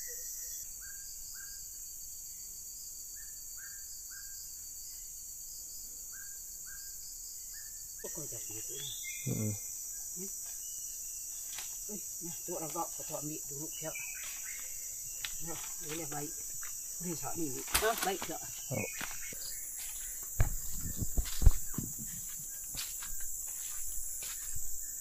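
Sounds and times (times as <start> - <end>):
insects buzzing: 0.0 - 25.0
low thumps: 20.2 - 22.3.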